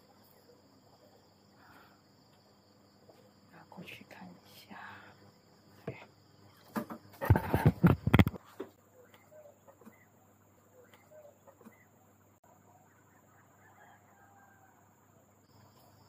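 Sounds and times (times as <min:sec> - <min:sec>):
clattering knocks and rustling: 0:06.6 - 0:08.8
faint chirps: 0:08.4 - 0:16.0.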